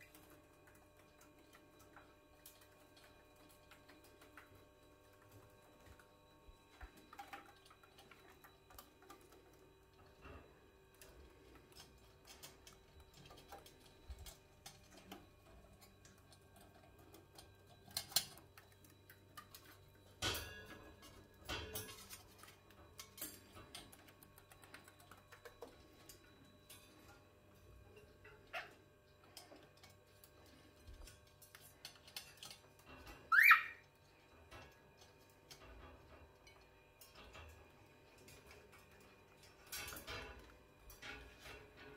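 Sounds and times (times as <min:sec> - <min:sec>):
birds pecking clicks and taps: 0:00.0 - 0:06.1, 0:06.7 - 0:27.2, 0:28.2 - 0:33.6.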